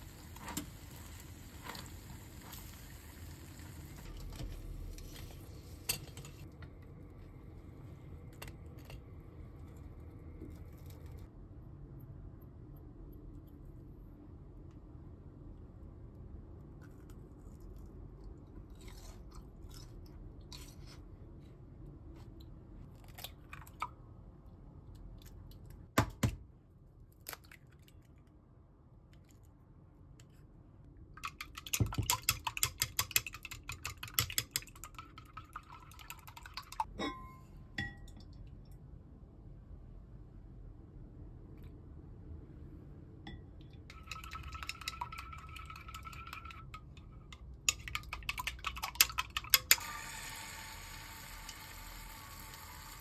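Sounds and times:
chopsticks beating egg in a jug: 0:31.2 - 0:36.9, 0:43.9 - 0:49.9.

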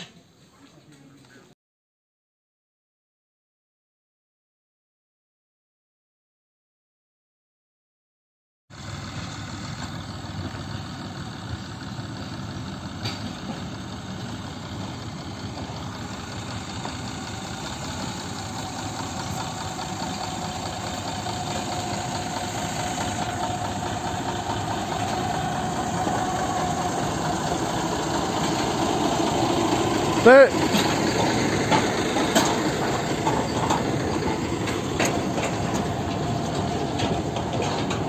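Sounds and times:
diesel locomotive running: 0:08.7 - 0:38.0.

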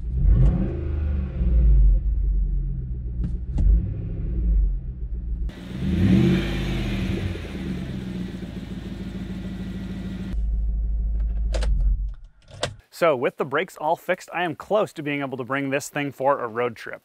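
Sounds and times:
open exhaust engine revving and idling: 0:00.0 - 0:11.3.

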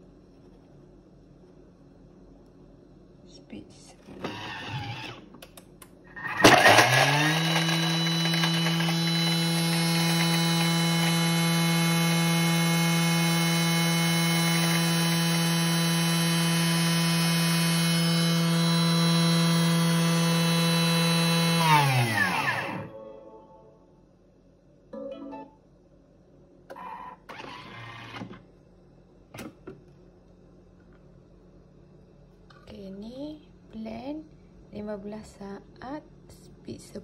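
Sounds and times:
blender motor whining: 0:04.2 - 0:05.3, 0:06.2 - 0:22.9, 0:26.8 - 0:28.4.

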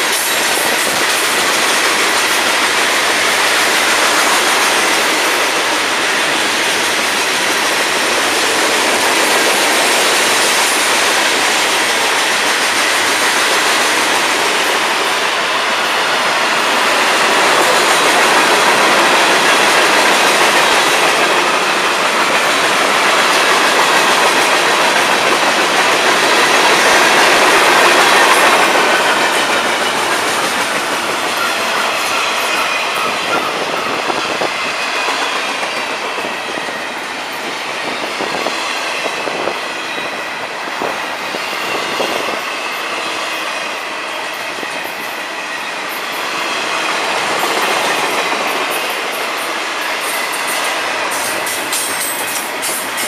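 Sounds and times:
freight train wheels rumbling: 0:00.0 - 0:53.0
high wheel squeal: 0:29.0 - 0:37.0.

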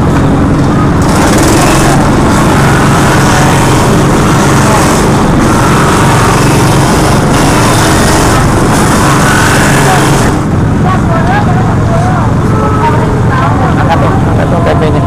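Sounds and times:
motorized coconut grater running: 0:01.0 - 0:10.6.

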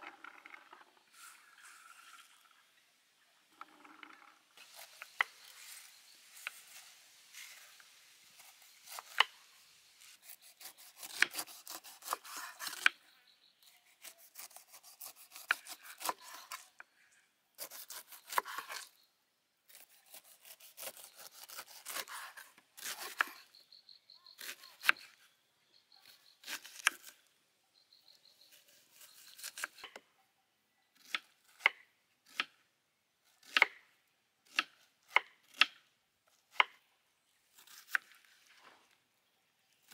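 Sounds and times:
knife cutting fruit: 0:04.6 - 0:13.0, 0:13.9 - 0:16.8, 0:17.6 - 0:19.0, 0:19.7 - 0:23.5, 0:26.0 - 0:27.3, 0:28.4 - 0:30.1, 0:37.5 - 0:38.4.

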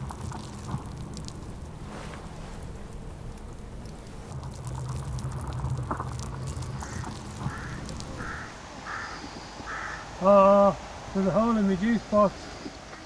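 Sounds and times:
low rumble of wind: 0:00.0 - 0:13.0
scattered crackles: 0:00.0 - 0:13.0
bird cawing: 0:06.4 - 0:13.0.

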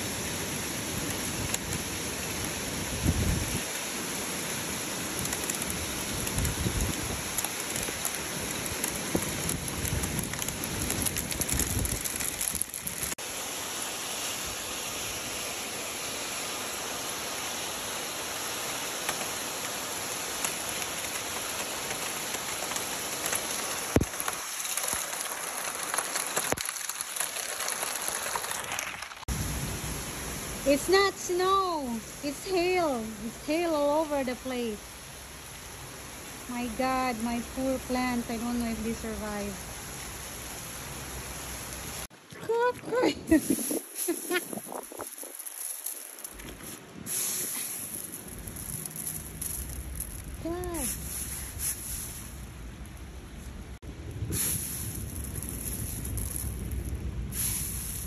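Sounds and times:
hail and rain falling hard: 0:00.0 - 0:13.2, 0:16.4 - 0:30.9, 0:43.0 - 0:52.4, 0:54.4 - 0:58.0.

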